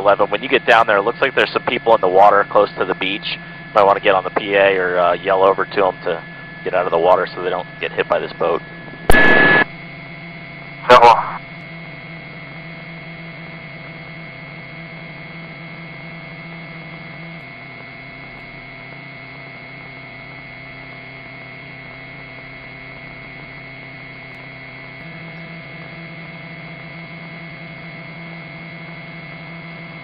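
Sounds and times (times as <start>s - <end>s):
radio intercom hum and hiss: 0.0s - 9.7s, 10.8s - 11.6s.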